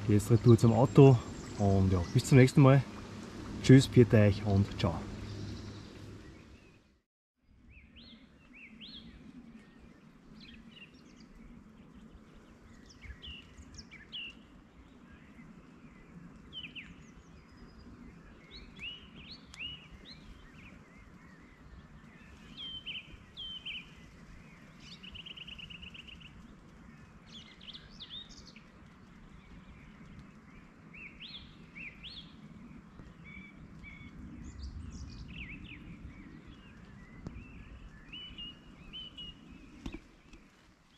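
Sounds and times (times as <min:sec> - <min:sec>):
low steady rumble: 0:00.0 - 0:06.8
songbirds chirping and calling: 0:00.0 - 0:07.0, 0:07.6 - 0:40.9.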